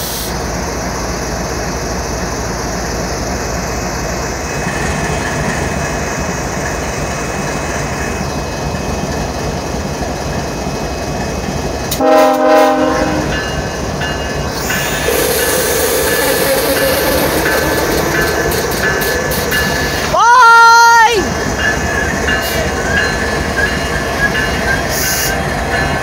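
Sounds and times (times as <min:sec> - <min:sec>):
locomotive diesel engine rumble: 0:00.0 - 0:26.0
train air horn blast: 0:12.0 - 0:13.4.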